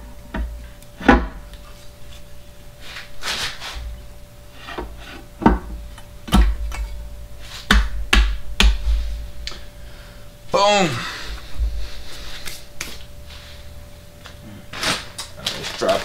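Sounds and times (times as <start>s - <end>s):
scraping rub: 1.7s - 3.9s.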